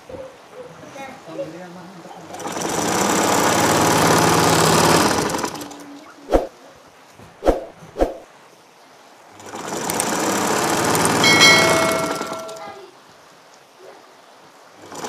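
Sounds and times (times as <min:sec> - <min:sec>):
sewing machine motor whining: 0:02.3 - 0:05.8.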